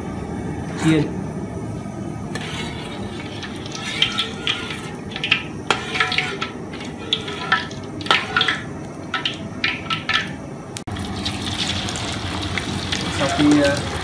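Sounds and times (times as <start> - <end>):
ladle scraping a metal wok: 2.3 - 10.4
ladle knocking on wok: 2.4 - 10.4.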